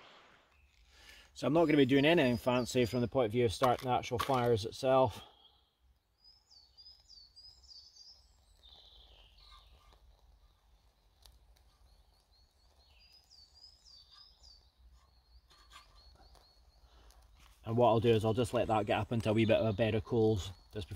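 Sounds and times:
high bird chirps: 6.2s - 10.0s, 11.7s - 20.9s.

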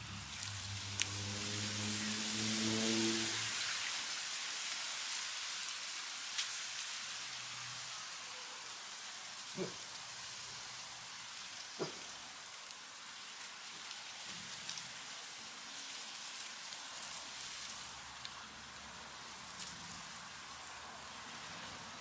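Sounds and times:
guinea pigs munching weeds: 9.5s - 10.0s.

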